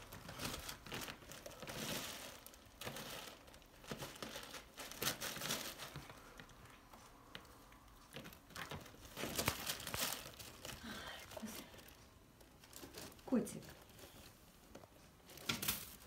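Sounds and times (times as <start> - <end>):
plastic bag crinkling and rustling: 0.0 - 16.0.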